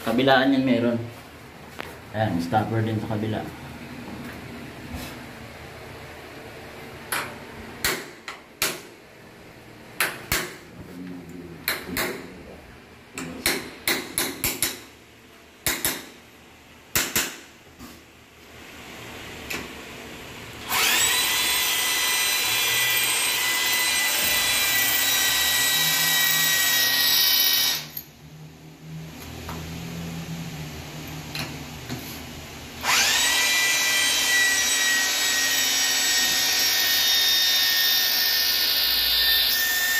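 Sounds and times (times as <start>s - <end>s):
cordless drill boring into wood: 20.6s - 28.0s, 32.8s - 39.9s.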